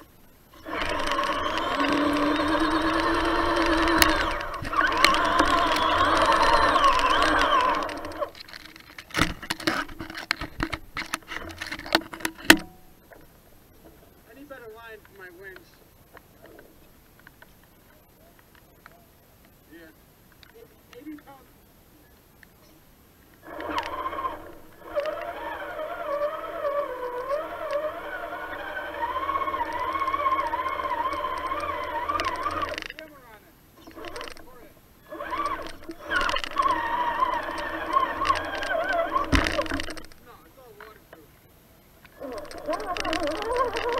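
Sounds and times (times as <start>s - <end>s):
rc truck clicks and knocks: 0.6s - 12.8s, 23.4s - 33.0s, 35.2s - 40.2s, 42.2s - 43.9s.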